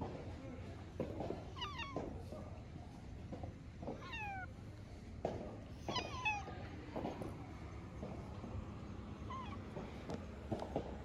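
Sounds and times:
cat meowing: 1.6 - 2.1, 4.0 - 4.6, 5.8 - 6.6, 9.2 - 9.7.

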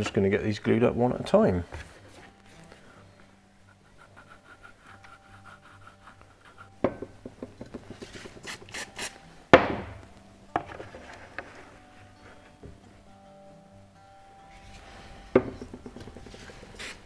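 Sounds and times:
sharp knock: 9.6 - 10.0.

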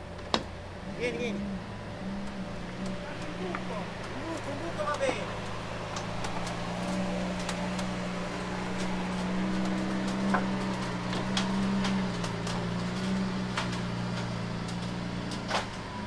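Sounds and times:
car engine idling: 0.0 - 16.0
sharp clicks and knocks: 2.2 - 8.1.

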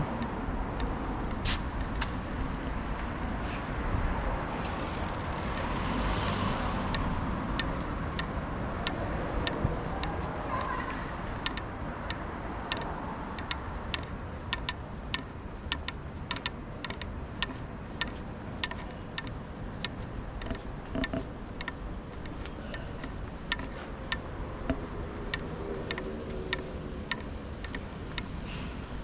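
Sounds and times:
low street hum: 0.0 - 29.0
footsteps on pavement: 0.2 - 3.8, 15.5 - 25.0.

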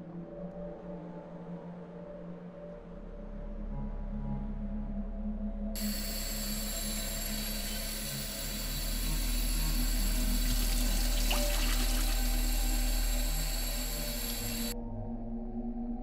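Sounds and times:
droning background music: 0.0 - 16.0
tap water splashing: 10.3 - 12.8.

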